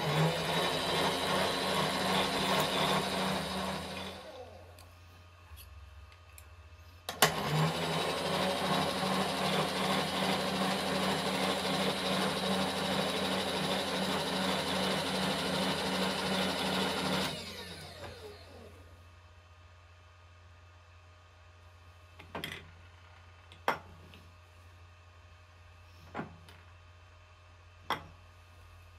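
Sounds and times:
milling machine motor running: 0.0 - 4.7, 7.4 - 18.8.

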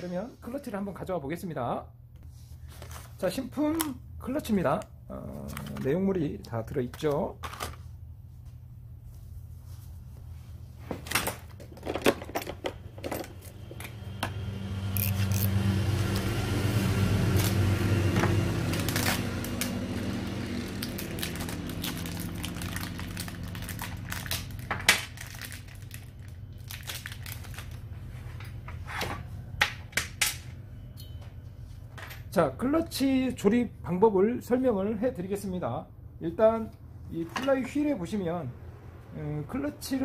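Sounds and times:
low humming rumble: 12.5 - 31.7
crinkling: 18.7 - 27.9.

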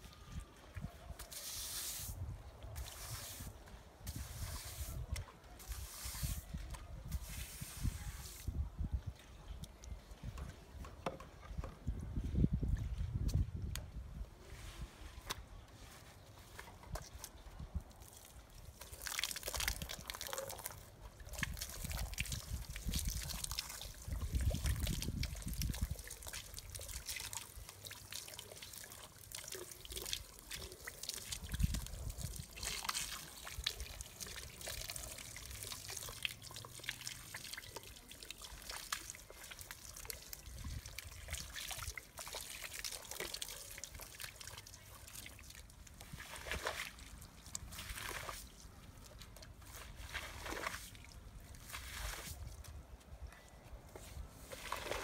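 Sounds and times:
water pouring and splashing: 0.8 - 8.6, 16.6 - 52.8, 54.4 - 55.0
stiff broom scrubbing wet rug: 1.2 - 2.2, 2.8 - 8.5, 21.4 - 51.0.

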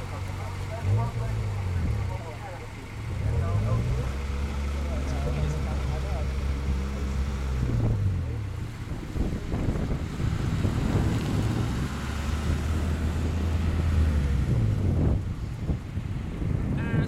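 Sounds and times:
wind buffeting microphone: 7.4 - 17.0.

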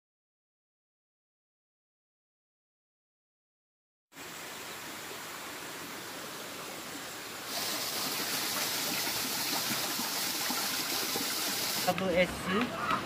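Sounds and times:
water rushing along channel: 4.2 - 13.0
water splashing from pipe: 7.4 - 12.0.

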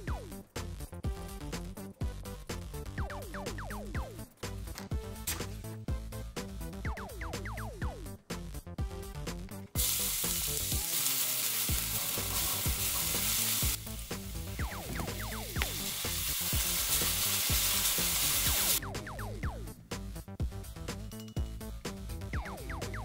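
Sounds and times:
onion sizzling in hot oil: 9.8 - 18.8.

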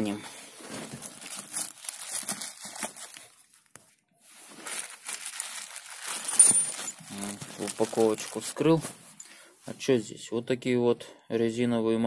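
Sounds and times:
plastic bag crinkling and tearing: 0.6 - 8.8.

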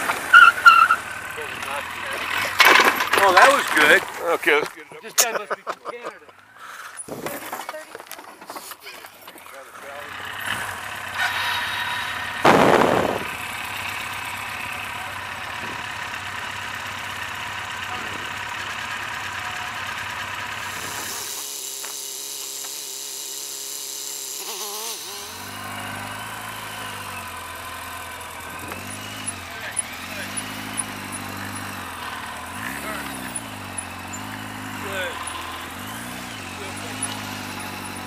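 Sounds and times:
motorcycle engine running: 0.0 - 4.8, 9.0 - 38.0
loud rush of noise: 11.3 - 14.5.

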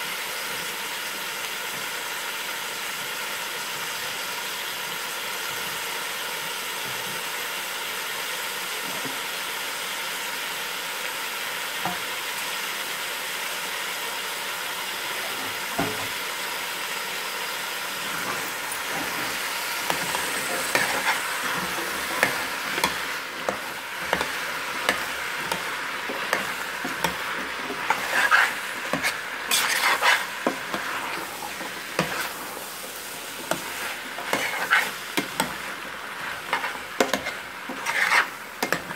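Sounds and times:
vegetables sizzling in a pot: 0.0 - 38.9
metal spoon scraping a pot: 18.0 - 32.4, 33.5 - 38.9.

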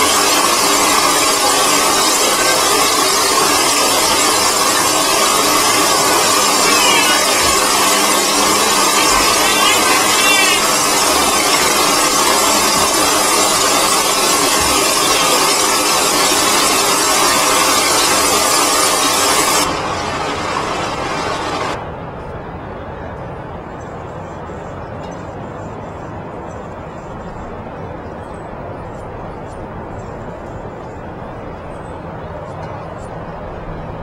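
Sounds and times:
shower water splashing: 0.0 - 21.8.

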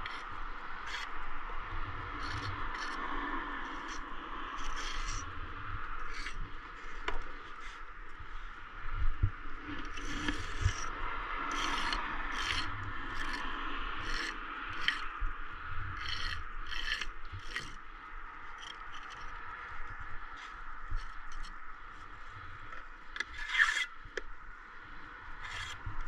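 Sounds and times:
trowel scraping mortar and brick: 0.0 - 0.2, 0.8 - 1.1, 2.2 - 3.0, 3.7 - 4.0, 4.6 - 5.2, 6.0 - 6.4, 9.9 - 10.9, 11.5 - 15.1, 16.0 - 17.8, 18.6 - 19.3, 23.2 - 23.9, 25.4 - 25.8.

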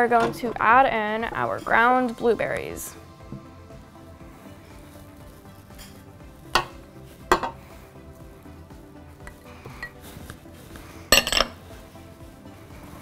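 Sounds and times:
dish knocking on steel bowl: 6.6 - 7.6
dishes clattering: 6.6 - 7.6, 11.1 - 11.6.

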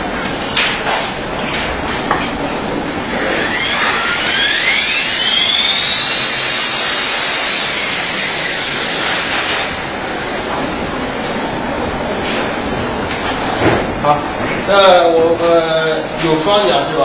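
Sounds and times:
rc helicopter motor whine: 2.8 - 10.0
rotor blades rushing: 2.8 - 11.7.

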